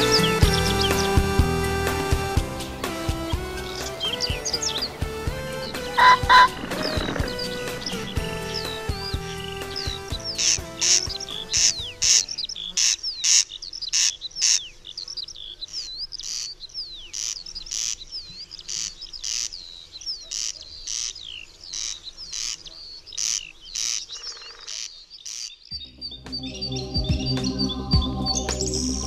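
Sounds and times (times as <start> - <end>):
music: 0.0 - 12.8, 25.7 - 29.0
small songbirds chirping: 0.0 - 29.0.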